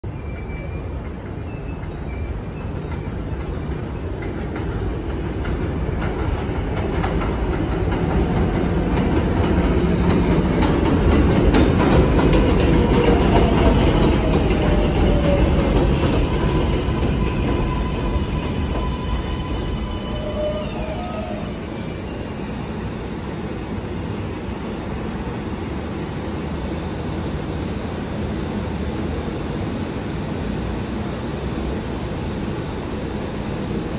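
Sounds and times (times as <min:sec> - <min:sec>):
subway train rumbling: 0:00.0 - 0:33.9
faint wheel squeal: 0:00.1 - 0:04.0, 0:15.0 - 0:24.0
steady high whine: 0:12.2 - 0:33.9.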